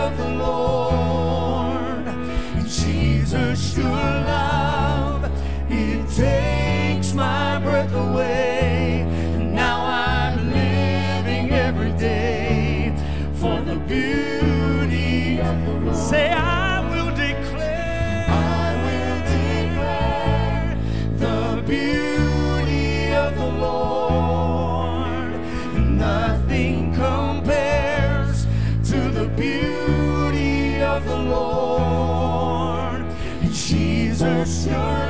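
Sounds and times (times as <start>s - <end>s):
man singing: 0.0s - 10.6s, 11.8s - 22.6s
keyboard chords: 0.0s - 35.0s
women backing singers: 0.0s - 35.0s.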